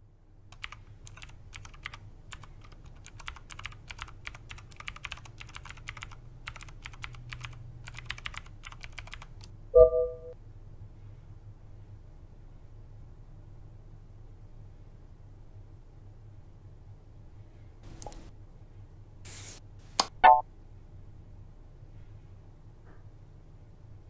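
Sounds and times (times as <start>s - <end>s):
laptop keyboard typing: 0.5s - 9.5s
loud tone with thump: 9.8s - 10.4s.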